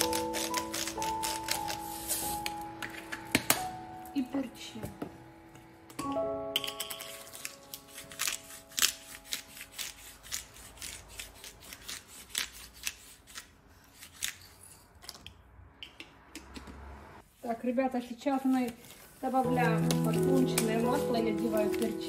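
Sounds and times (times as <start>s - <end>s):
pepper grinder cracking peppercorns: 0.0s - 1.8s.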